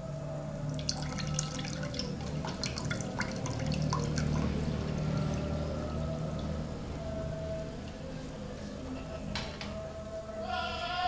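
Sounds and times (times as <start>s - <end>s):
drips and splashes: 0.6s - 6.6s
water pouring into pot: 0.7s - 6.4s.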